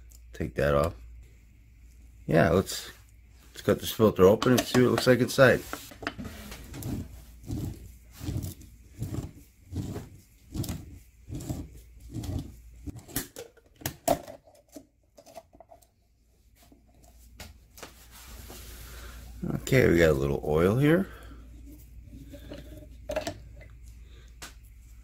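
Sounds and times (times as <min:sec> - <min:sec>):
cutting wheel scraping metal: 0:06.3 - 0:12.5.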